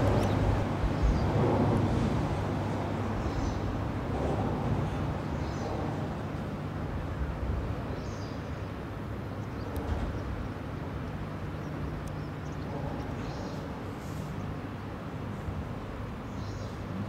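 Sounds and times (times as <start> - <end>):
birds chirping: 7.9 - 15.4, 16.2 - 16.9.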